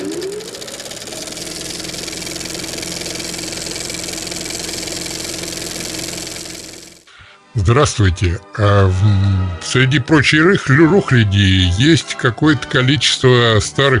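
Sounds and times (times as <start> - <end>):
film projector whirring: 0.0 - 7.1.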